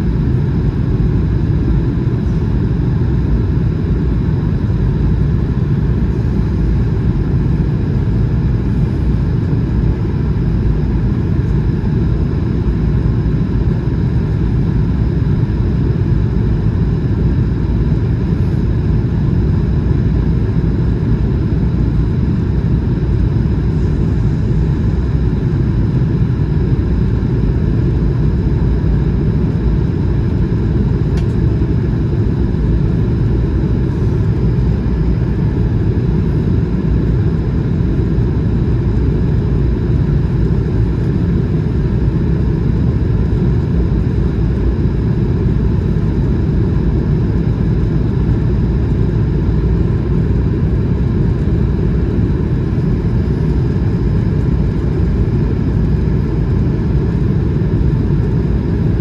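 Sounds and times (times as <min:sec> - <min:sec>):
jet engine cabin rumble: 0:00.0 - 0:59.0.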